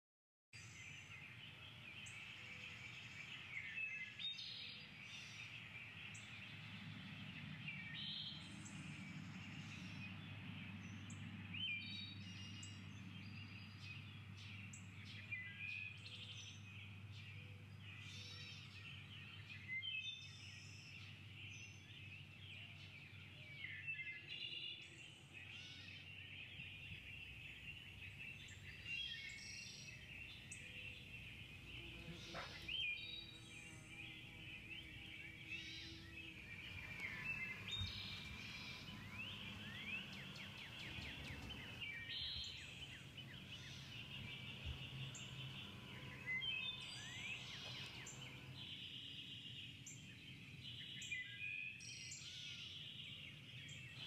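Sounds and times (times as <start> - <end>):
birds chirping and singing: 0.6 - 54.0
faint low hum: 0.6 - 54.0
steady high hiss: 27.6 - 50.5.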